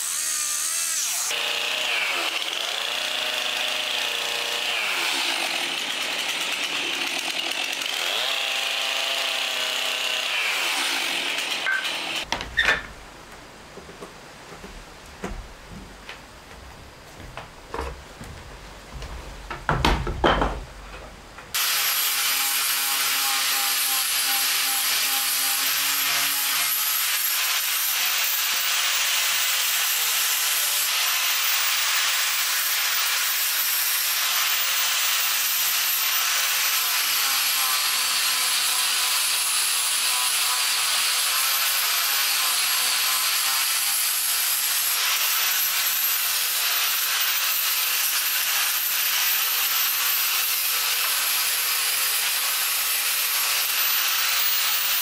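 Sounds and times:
angle grinder grinding wood: 0:00.0 - 0:12.9, 0:21.5 - 0:55.0
clicks and knocks: 0:11.7 - 0:16.2, 0:19.0 - 0:21.5.

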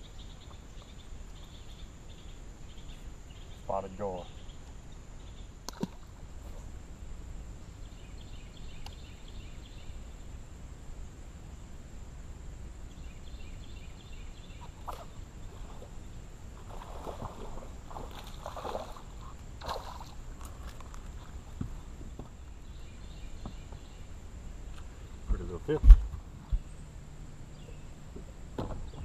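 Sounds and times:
fish splashing at water surface: 0:16.6 - 0:20.2.

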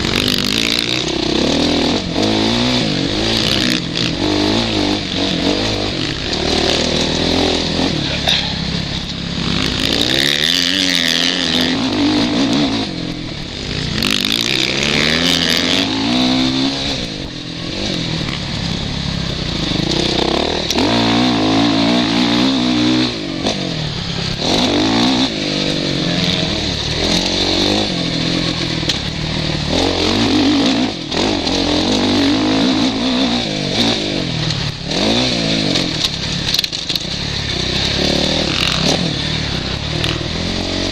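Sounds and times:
motocross engine revving: 0:00.0 - 0:40.9.

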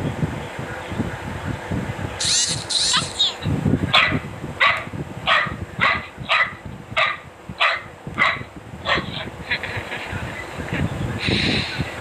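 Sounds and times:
dog barking: 0:03.9 - 0:09.3.

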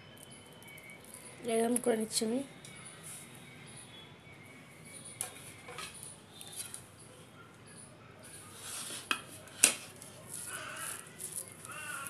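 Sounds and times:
rustling of crumbly mixture: 0:08.5 - 0:12.0.

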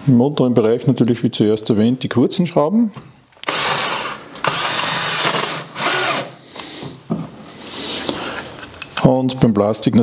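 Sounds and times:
drill-driver driving screw into wood: 0:03.4 - 0:06.4.

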